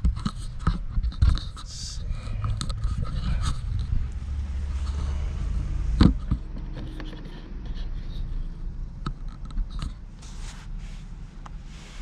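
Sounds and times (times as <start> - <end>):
clicks scrapes and rustles: 0.0 - 5.2, 9.0 - 10.7.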